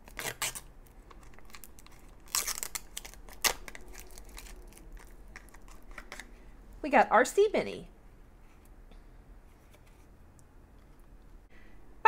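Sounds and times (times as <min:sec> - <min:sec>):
plastic wrapper crinkling and tearing: 0:00.0 - 0:06.4.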